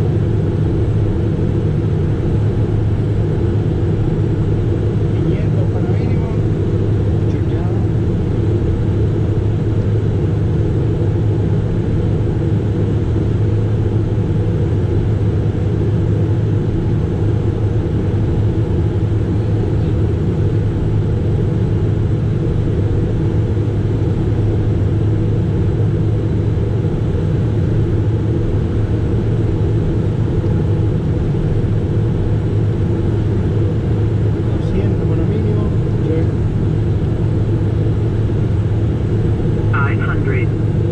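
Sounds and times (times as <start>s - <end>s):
jet engine drone in cockpit: 0.0s - 40.9s
airflow: 33.0s - 40.9s.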